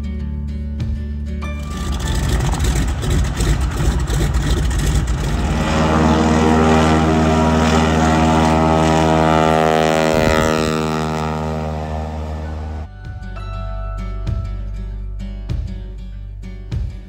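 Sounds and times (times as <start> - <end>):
floatplane engine drone: 1.5 - 12.9.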